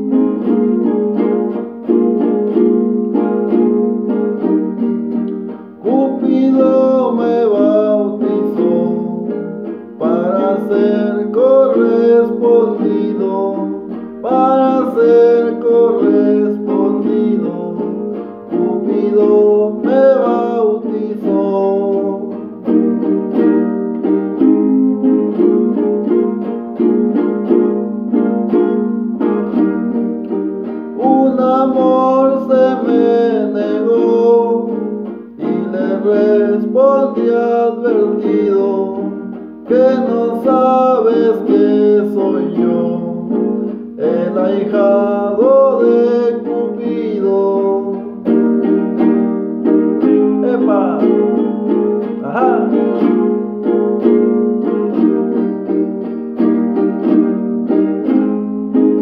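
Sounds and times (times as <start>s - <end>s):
strummed guitar: 0.0s - 59.0s
man singing: 5.8s - 22.8s, 30.9s - 48.4s, 49.9s - 55.6s.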